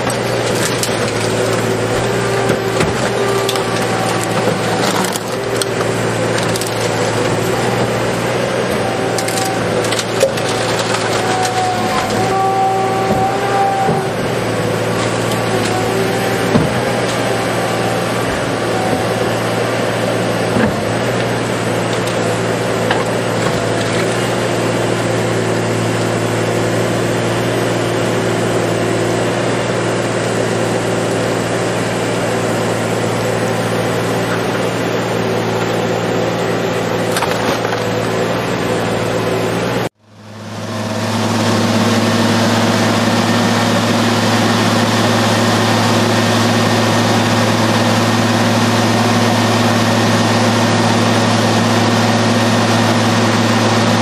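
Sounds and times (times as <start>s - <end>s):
metal tearing cracks: 0.0s - 12.4s
heavy engine drone: 0.0s - 54.0s.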